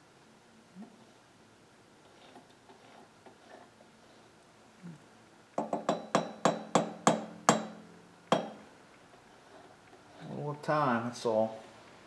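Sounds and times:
metal-on-metal taps: 5.6s - 8.6s.

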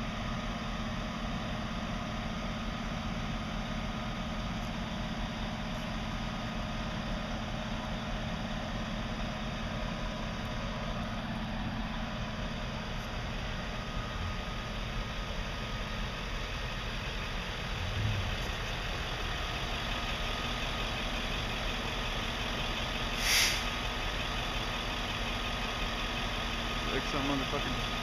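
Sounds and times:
vehicle engines idling: 0.0s - 28.0s
air hiss: 23.2s - 23.7s.

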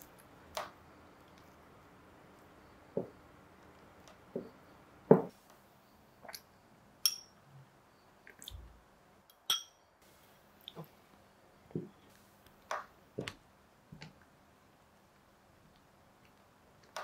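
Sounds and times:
glass bowl clinks: 7.0s - 7.4s, 9.3s - 9.8s.

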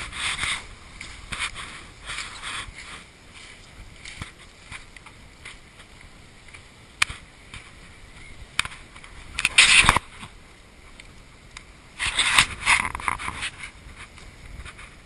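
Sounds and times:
scrape: 0.0s - 0.7s, 1.3s - 3.6s, 12.0s - 15.0s
camera handling rustle: 8.6s - 10.3s, 12.0s - 15.0s.

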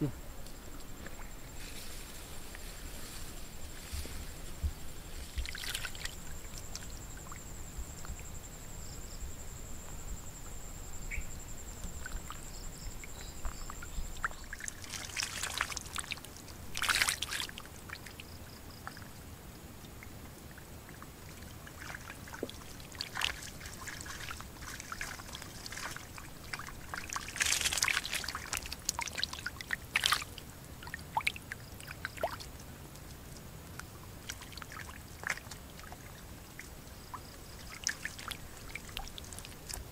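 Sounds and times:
muddy water trickling: 0.0s - 9.0s, 9.8s - 39.9s
water splashes: 4.4s - 7.4s, 13.0s - 19.0s, 20.5s - 39.9s.

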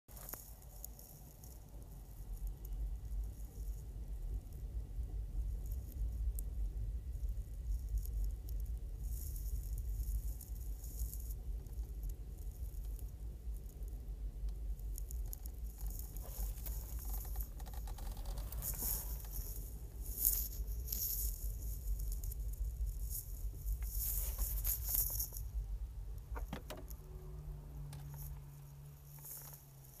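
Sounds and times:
rattling and handling noise: 0.1s - 3.8s, 14.8s - 30.0s
low steady hum: 0.1s - 30.0s
road rumble inside moving car: 0.1s - 30.0s.

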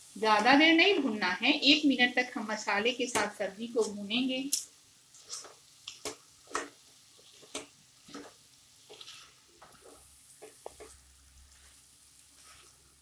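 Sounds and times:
faint frying sizzle: 0.0s - 13.0s
spoon scraping and knocking in pan: 3.1s - 12.8s.

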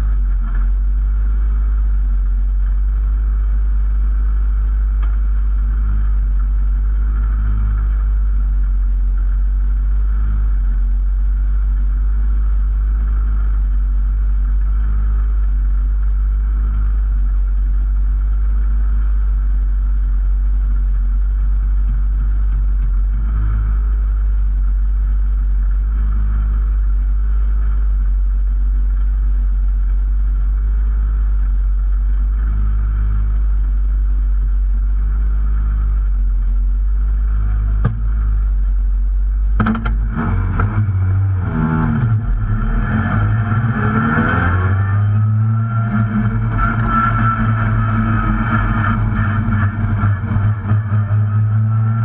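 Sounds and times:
rally car engine running: 0.0s - 52.0s.

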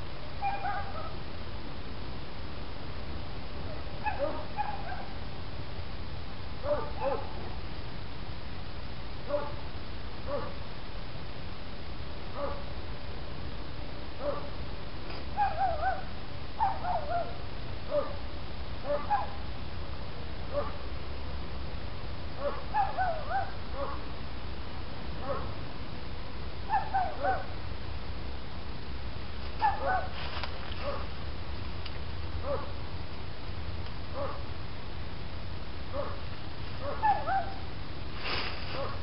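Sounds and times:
steady low rumble: 0.0s - 39.0s
animal high calls: 0.4s - 1.2s, 36.8s - 37.6s.

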